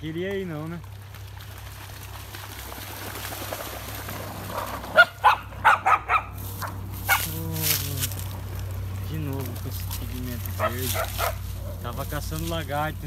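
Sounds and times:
water sloshing: 0:00.0 - 0:13.0
dog barking: 0:04.9 - 0:07.3, 0:10.6 - 0:11.4.

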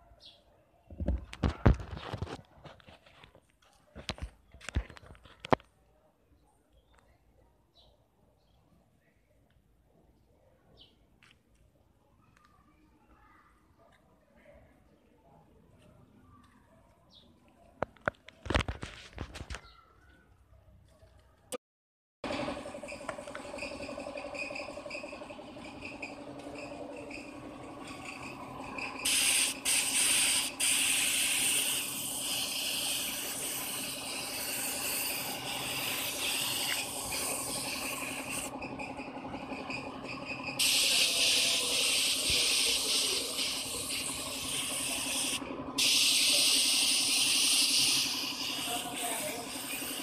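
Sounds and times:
spray paint hissing: 0:23.2 - 0:38.8, 0:39.6 - 0:50.0.

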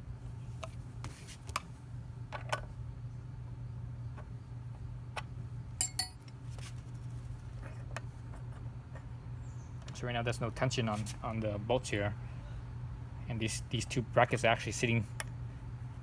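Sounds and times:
steady low hum: 0:00.0 - 0:16.0
ringing metal clinks: 0:05.8 - 0:06.3.

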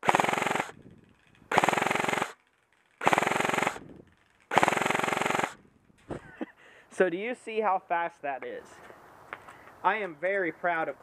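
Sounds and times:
airsoft gun firing bursts: 0:00.0 - 0:00.8, 0:01.5 - 0:02.4, 0:03.0 - 0:03.9, 0:04.5 - 0:05.6.

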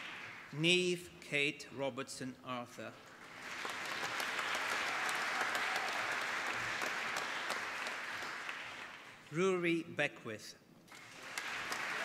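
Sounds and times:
audience applause: 0:03.2 - 0:09.2, 0:10.9 - 0:12.0.

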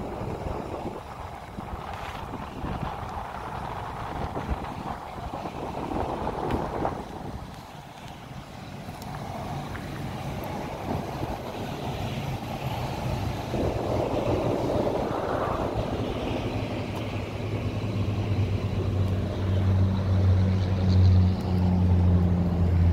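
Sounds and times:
engine droning: 0:00.0 - 0:22.9
rushing noise: 0:08.3 - 0:22.9.

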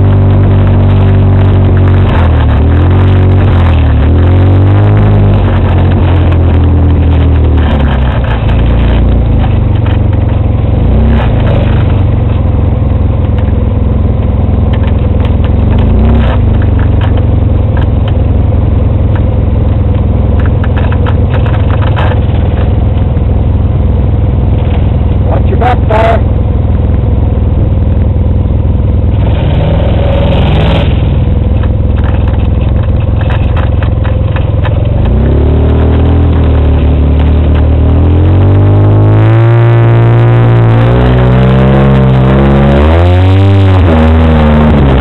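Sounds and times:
vehicle rattles and knocks: 0:00.0 - 0:28.5, 0:29.1 - 0:39.6
off-road vehicle engine: 0:00.0 - 0:45.0.

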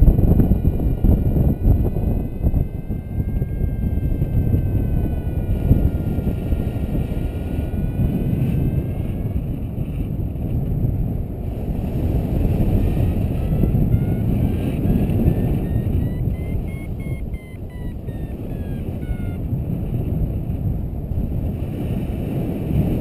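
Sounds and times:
thin wavering whistle: 0:00.0 - 0:10.2, 0:11.6 - 0:19.6
wind buffeting microphone: 0:00.0 - 0:23.0
short rising whistles: 0:15.2 - 0:19.4.

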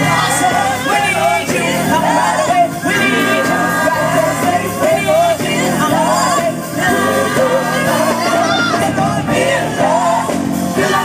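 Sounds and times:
drums and keyboards: 0:00.0 - 0:11.0
vocal group singing: 0:00.0 - 0:11.0.

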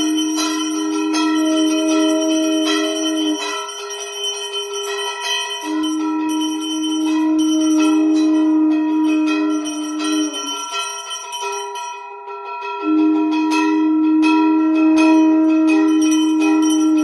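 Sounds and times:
long steady low tone: 0:00.0 - 0:03.7, 0:05.6 - 0:10.6, 0:12.8 - 0:17.0
bells ringing: 0:00.0 - 0:17.0.

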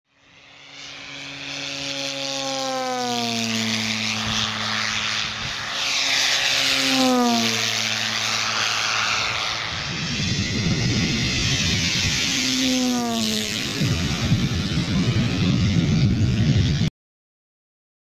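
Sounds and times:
propeller flyby: 0:00.1 - 0:16.9.

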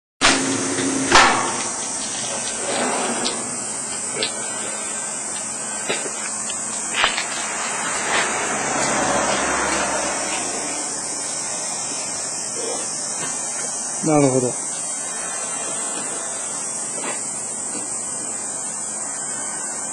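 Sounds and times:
slicing machine hiss: 0:00.2 - 0:19.9
sharp knocks: 0:00.3 - 0:01.8.

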